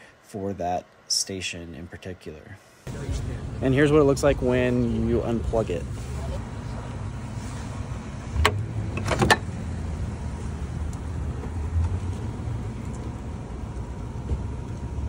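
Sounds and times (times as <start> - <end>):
charger handle clicks and clunks: 8.3 - 9.6.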